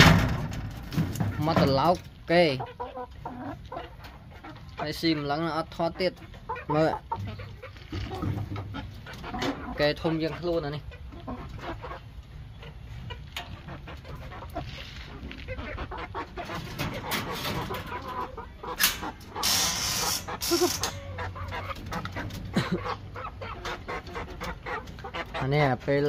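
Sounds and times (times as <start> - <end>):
chickens clucking: 0.0 - 26.0
metal latch and cage door rattling: 18.8 - 19.3.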